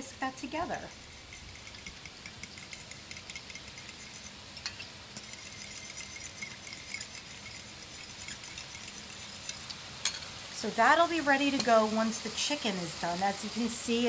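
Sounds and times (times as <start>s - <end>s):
chicken sizzling in a pan: 0.0s - 14.0s
fork whisking in glass bowl: 0.7s - 9.7s.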